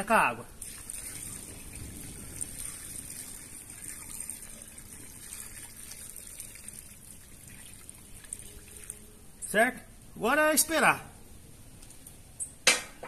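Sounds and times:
water pouring into pot: 0.6s - 9.1s.

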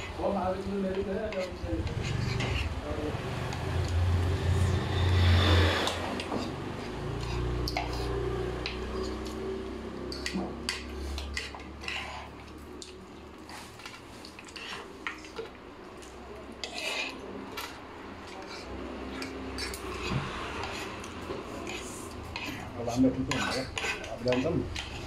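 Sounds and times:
cutlery clinking on dishes: 10.0s - 12.2s.

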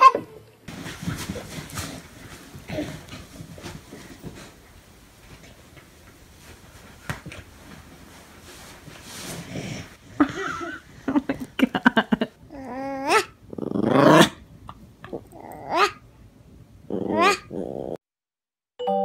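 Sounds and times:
dog growling: 12.5s - 14.4s, 15.0s - 16.0s, 16.9s - 18.0s.

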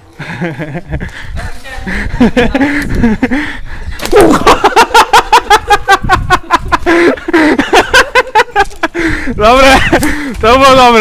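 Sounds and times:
person laughing loudly: 1.9s - 3.5s, 4.1s - 10.4s.

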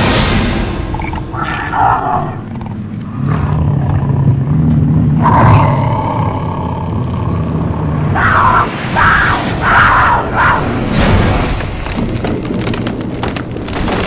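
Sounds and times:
big cat growling: 0.9s - 8.7s.

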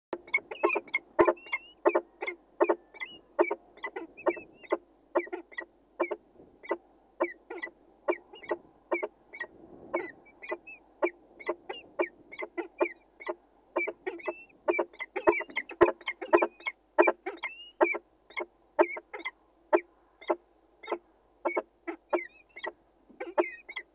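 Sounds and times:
falcon calling: 0.2s - 19.4s, 20.2s - 23.9s.

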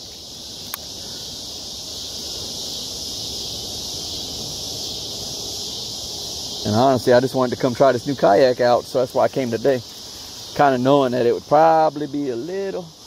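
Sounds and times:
insects chirping: 0.0s - 13.0s
small click: 0.6s - 0.9s.

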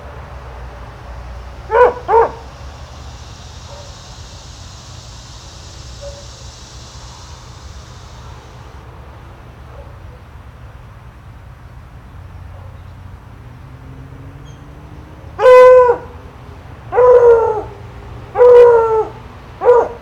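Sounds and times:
low background hum: 0.0s - 14.7s
dog barking: 1.7s - 2.5s, 3.6s - 4.0s, 6.0s - 6.4s, 9.7s - 10.2s, 12.5s - 12.8s, 15.4s - 16.2s, 16.9s - 20.0s.

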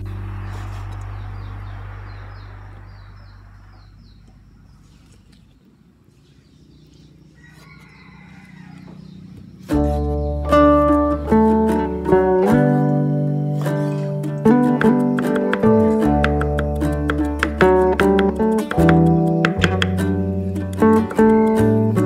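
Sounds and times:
bird chirping: 0.0s - 22.0s
chicken calling: 6.4s - 10.4s
guitar music: 9.6s - 22.0s.

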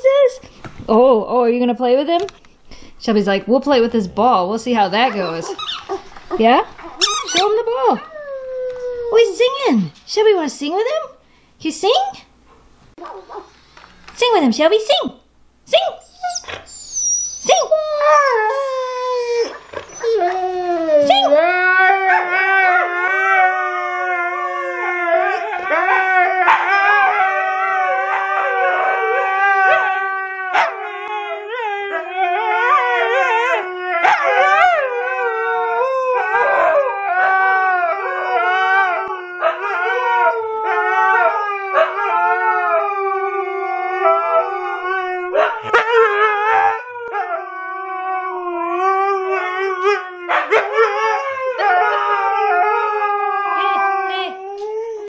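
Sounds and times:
dog yelping: 5.0s - 8.1s, 16.0s - 18.2s, 29.7s - 34.6s, 45.3s - 46.2s
dog howling: 16.2s - 55.0s.

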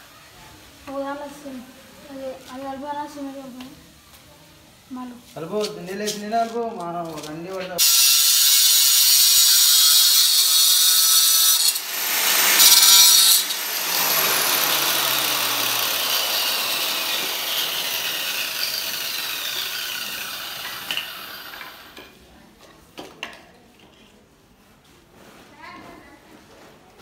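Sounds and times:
marble cutter grinding: 7.8s - 22.0s.

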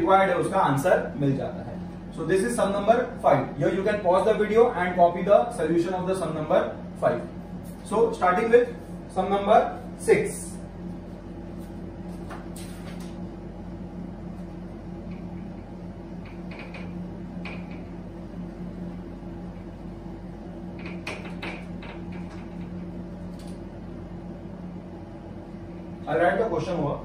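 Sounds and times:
low room hum: 0.0s - 27.0s.

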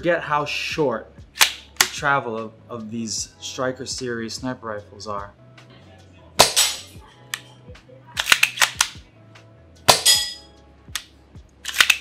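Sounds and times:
rifle bolt clicks and clacks: 8.2s - 9.0s, 11.7s - 12.0s.

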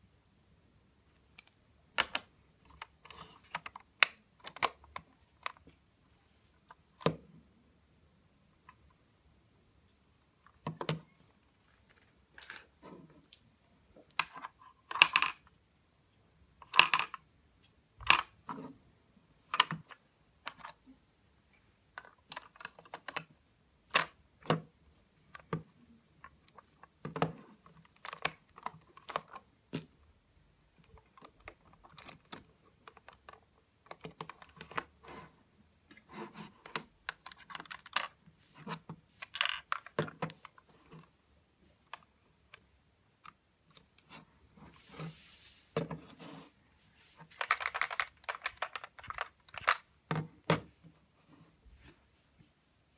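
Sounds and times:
plastic clicks and clacks: 1.3s - 5.8s, 25.3s - 30.0s, 30.8s - 35.1s, 36.6s - 41.1s, 47.3s - 50.7s.

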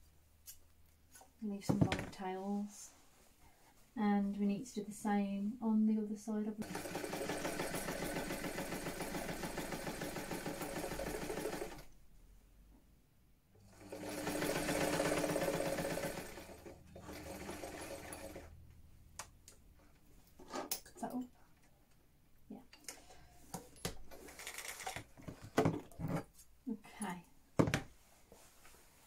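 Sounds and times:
sewing machine stitching: 6.6s - 11.9s, 13.6s - 18.5s.

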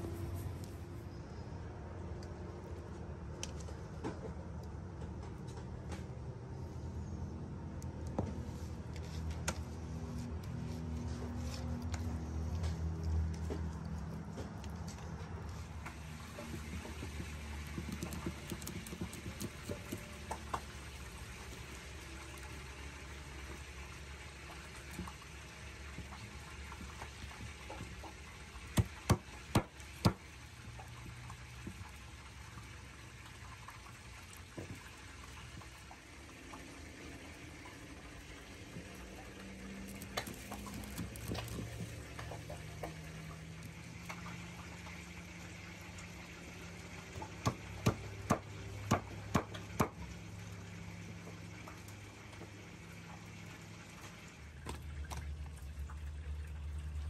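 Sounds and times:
knife cutting and scraping fish: 8.4s - 22.3s, 39.7s - 43.0s.

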